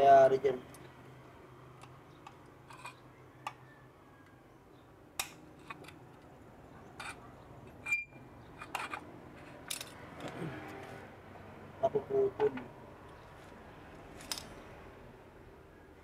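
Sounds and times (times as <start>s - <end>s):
tools clicking on metal: 14.2s - 14.6s.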